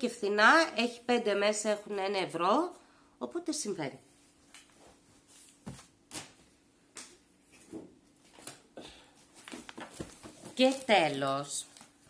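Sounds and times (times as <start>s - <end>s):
handling knocks taps and rustles: 9.4s - 11.3s.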